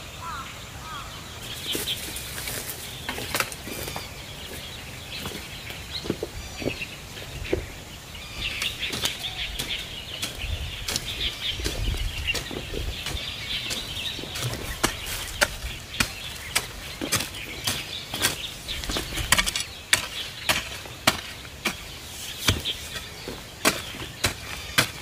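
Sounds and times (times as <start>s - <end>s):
birds chirping: 0.0s - 25.0s
hoe cutting into dry soil: 8.4s - 25.0s.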